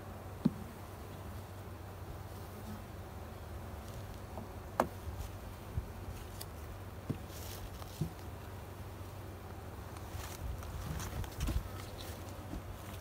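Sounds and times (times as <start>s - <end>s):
honeybees humming: 0.0s - 13.0s.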